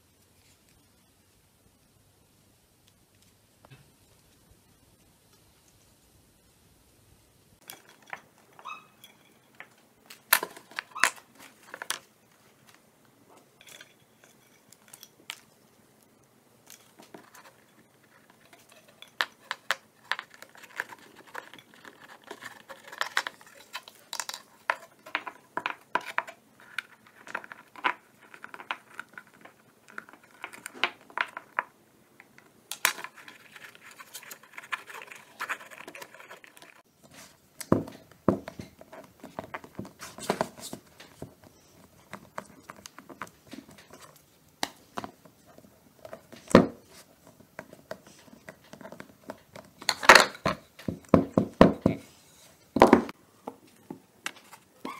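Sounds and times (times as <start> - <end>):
tape rustling: 9.5 - 53.1.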